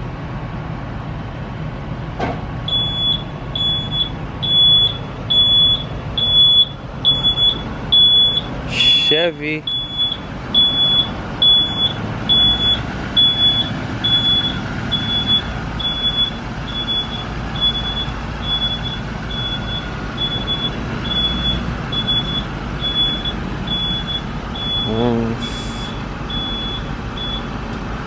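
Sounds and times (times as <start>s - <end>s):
bus engine rumbling: 0.0s - 28.0s
vehicle back-up beeper: 2.7s - 27.6s.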